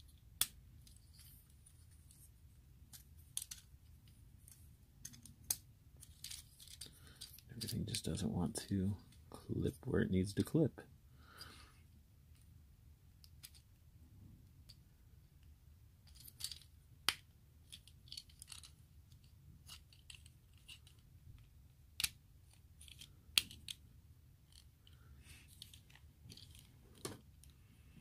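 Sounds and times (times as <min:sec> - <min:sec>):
plastic toy parts clicking: 0:02.9 - 0:07.8, 0:16.0 - 0:23.8, 0:24.4 - 0:27.5.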